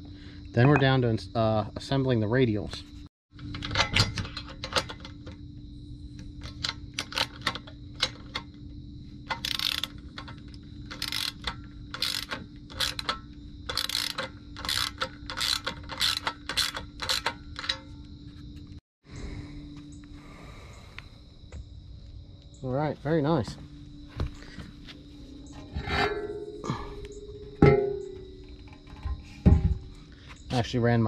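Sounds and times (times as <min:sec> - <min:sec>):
ratchet wrench clicking: 0:09.3 - 0:17.8.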